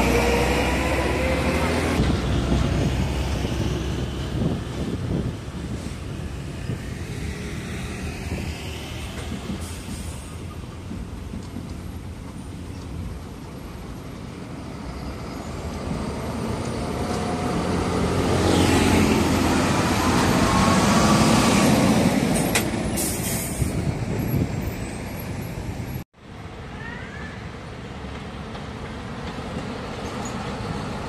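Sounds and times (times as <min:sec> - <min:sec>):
truck diesel engine passing: 0:00.0 - 0:10.6, 0:14.6 - 0:24.1.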